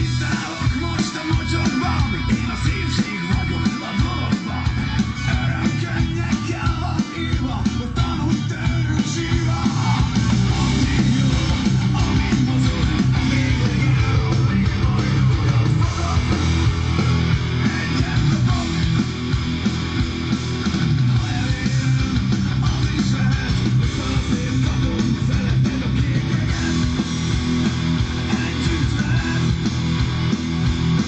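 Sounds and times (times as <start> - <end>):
guitar rock music from loudspeaker: 0.0 - 31.0.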